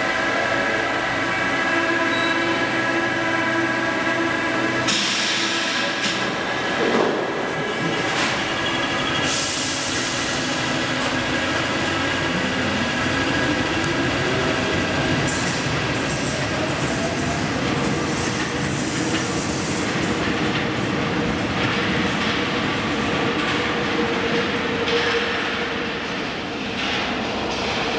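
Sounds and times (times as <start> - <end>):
train motor whine: 0.0 - 20.1
wheel and rail noise: 0.0 - 27.9.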